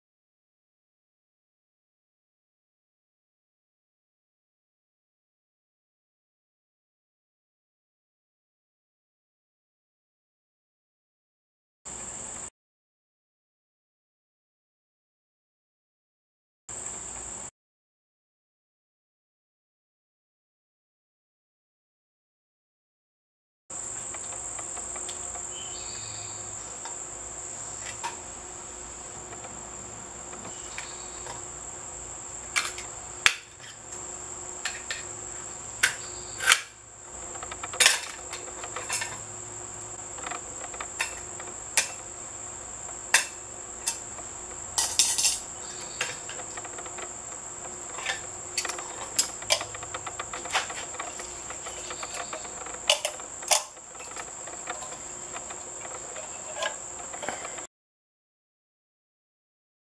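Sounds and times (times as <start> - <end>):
high-pitched insect drone: 23.8 - 57.7
metal parts clinking against tools: 44.8 - 45.5, 48.0 - 55.0.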